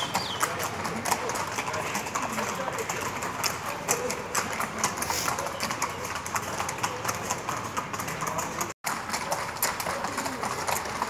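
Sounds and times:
horse hooves clip-clopping on road: 0.0s - 11.0s.

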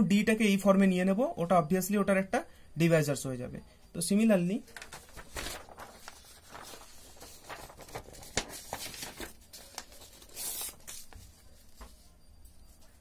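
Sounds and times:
paper sheets rustling and sliding: 4.6s - 13.0s.

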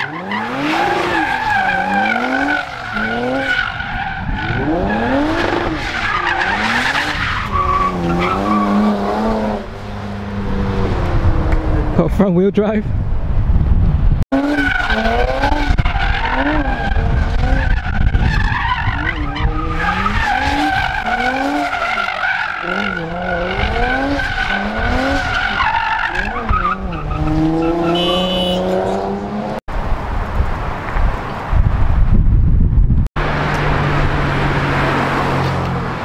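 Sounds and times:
tire squeal: 0.0s - 9.3s, 14.4s - 29.0s
car engine revving: 0.0s - 12.0s, 14.3s - 29.6s.

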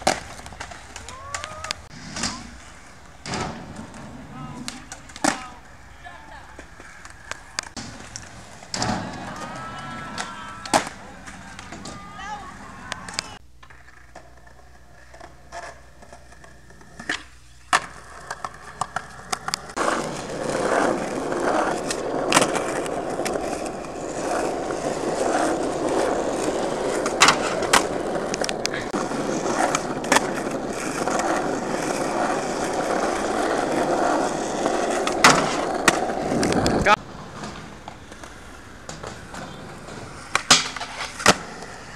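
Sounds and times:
skateboard clacks: 0.0s - 41.9s
skateboard wheels rolling on asphalt: 0.0s - 41.9s.

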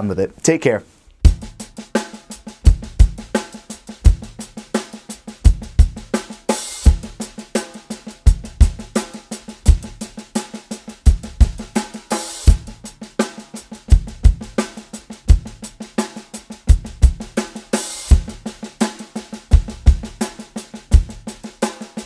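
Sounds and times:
hi-hat: 1.2s - 22.0s
bass drum kicks: 1.3s - 1.8s, 2.7s - 3.4s, 5.5s - 6.1s, 6.9s - 7.2s, 8.3s - 9.0s, 11.1s - 11.8s, 12.5s - 12.8s, 13.9s - 14.6s, 16.7s - 17.4s, 18.1s - 18.4s, 19.6s - 20.2s, 21.0s - 21.3s
snare drum: 1.3s - 22.0s.

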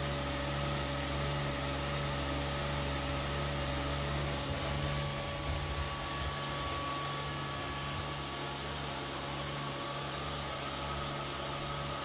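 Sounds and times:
faint high whine: 1.1s - 12.0s.

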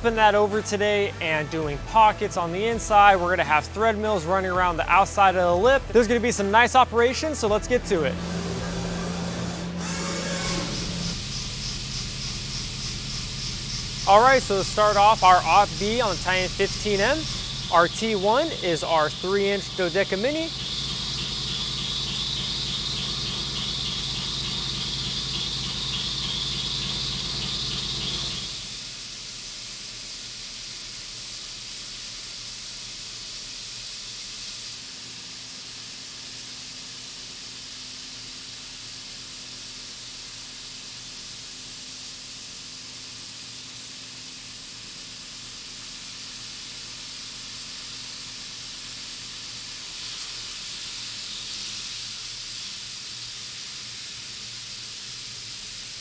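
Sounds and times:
coolant spray hissing: 7.2s - 56.0s
milling machine cutting metal: 8.0s - 29.0s.

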